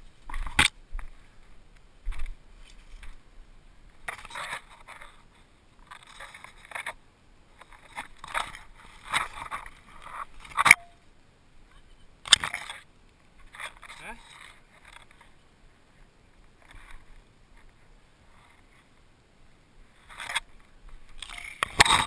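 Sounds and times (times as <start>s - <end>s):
leaves and branches rustling: 0.0s - 22.0s.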